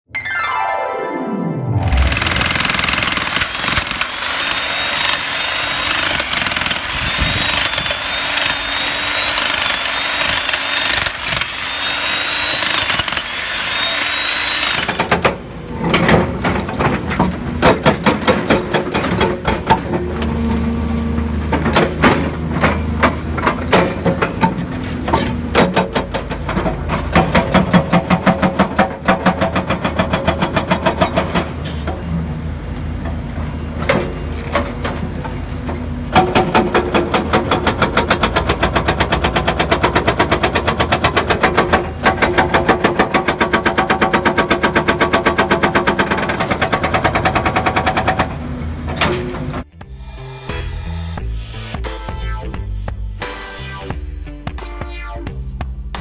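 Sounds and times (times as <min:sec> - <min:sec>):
electric demolition hammer hammering: 0:01.8 - 0:15.5, 0:36.1 - 0:48.4
hydraulic breaker striking ground: 0:01.9 - 0:11.6, 0:12.3 - 0:13.3, 0:14.4 - 0:20.2
excavator engine hum: 0:15.4 - 0:28.4.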